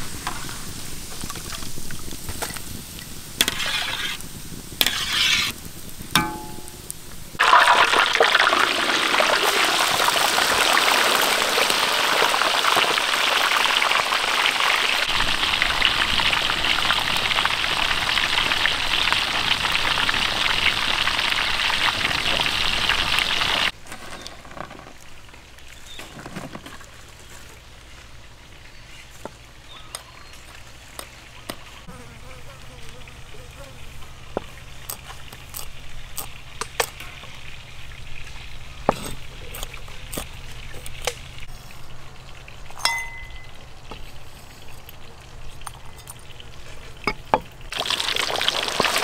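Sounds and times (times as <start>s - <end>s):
hot oil sizzling in wok: 0.0s - 23.8s, 34.4s - 49.0s
quiet outdoor background: 0.0s - 49.0s.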